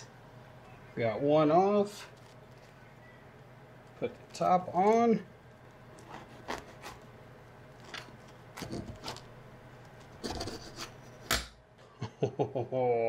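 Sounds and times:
knife sawing through bread roll: 6.1s - 7.0s, 10.2s - 11.0s.

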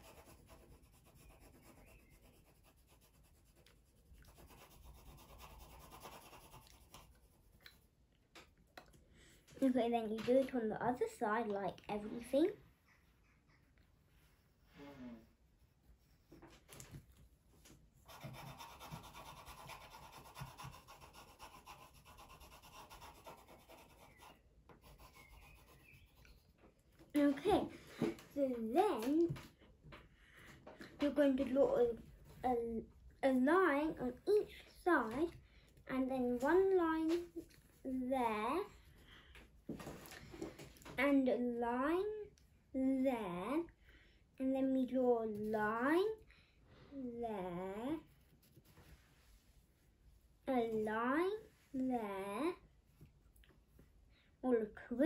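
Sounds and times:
pencil shading on paper: 0.0s - 7.6s, 18.0s - 26.4s.

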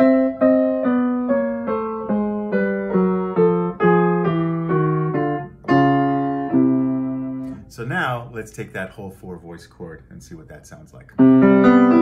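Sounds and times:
piano playing descending chords: 0.0s - 7.7s, 11.2s - 12.0s.

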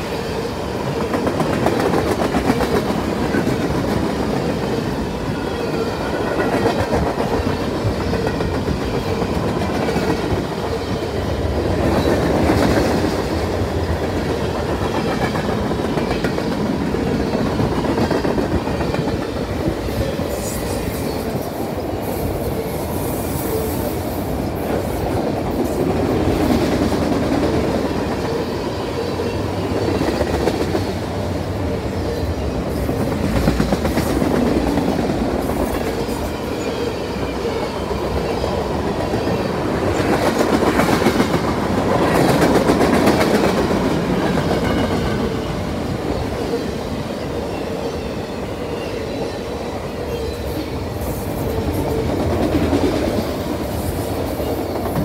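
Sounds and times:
train wheels rumbling on rails: 0.0s - 55.0s
clickety-clack over rail joints: 1.0s - 4.7s, 6.1s - 10.9s, 11.7s - 20.6s, 32.7s - 36.3s, 39.0s - 45.5s.

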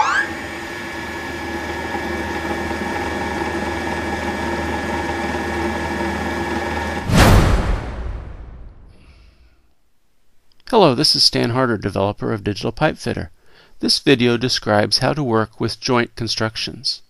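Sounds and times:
loud burst of noise: 7.0s - 9.2s
low hum: 7.0s - 9.3s.

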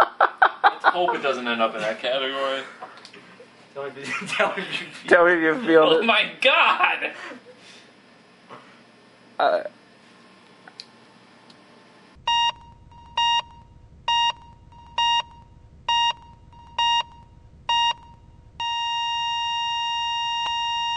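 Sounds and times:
continuous flatline tone: 12.1s - 20.9s
heart monitor beeps: 12.2s - 20.9s.

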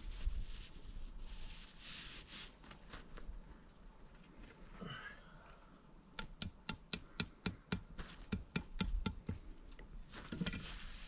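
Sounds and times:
soft rustle: 0.0s - 5.8s, 9.4s - 11.0s.

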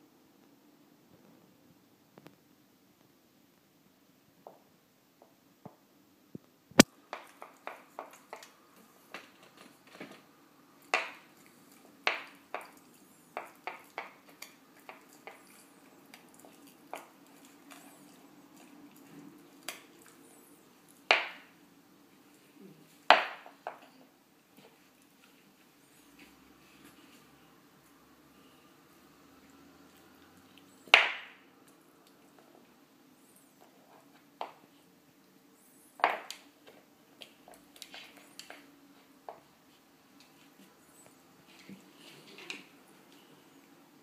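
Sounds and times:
puppy chewing: 10.8s - 21.1s.

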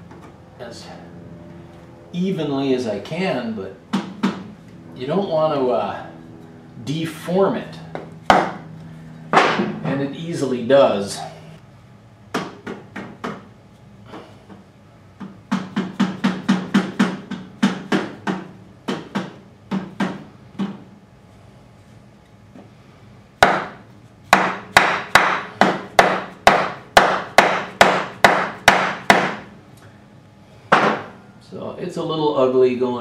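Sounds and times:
hammer striking wood block: 8.3s - 8.6s, 15.5s - 20.8s, 23.4s - 29.4s, 30.7s - 31.1s.

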